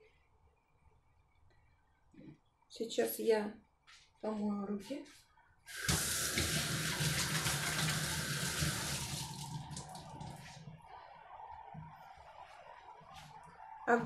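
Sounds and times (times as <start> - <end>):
tap water running into sink: 5.7 - 10.4
hands washing under water: 5.7 - 10.7.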